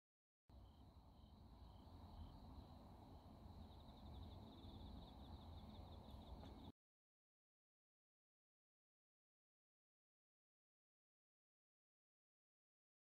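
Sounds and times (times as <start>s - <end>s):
crickets chirping: 0.5s - 6.7s
low background rumble: 0.6s - 6.7s.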